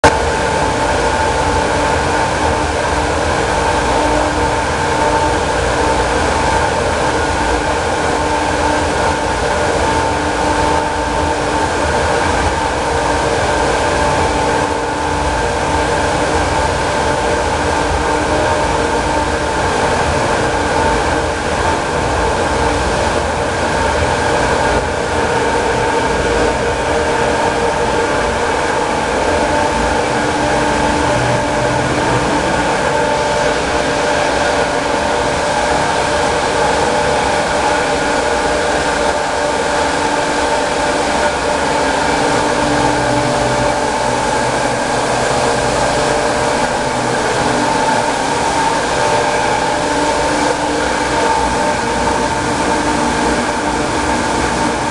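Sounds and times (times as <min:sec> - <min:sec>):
water rushing and splashing: 0:00.0 - 0:54.9
water turbine machine hum: 0:00.0 - 0:54.9.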